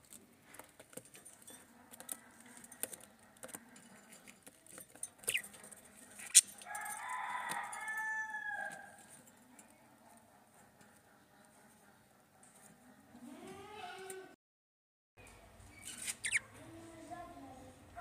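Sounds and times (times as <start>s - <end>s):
small clicks and scratches: 0.0s - 7.8s
budgerigar chirp: 15.8s - 16.5s.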